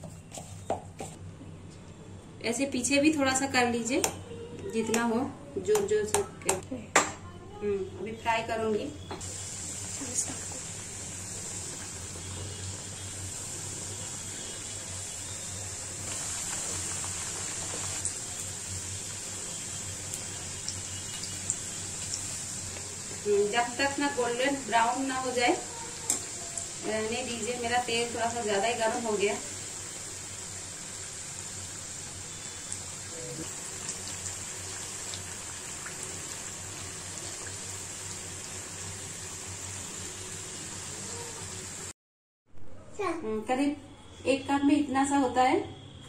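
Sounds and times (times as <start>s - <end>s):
oil sizzling with frying dough: 8.4s - 42.0s.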